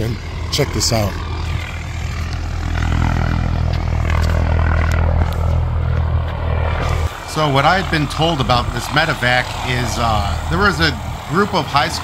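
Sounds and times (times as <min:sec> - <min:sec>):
helicopter rotor and engine hum: 0:00.0 - 0:12.0.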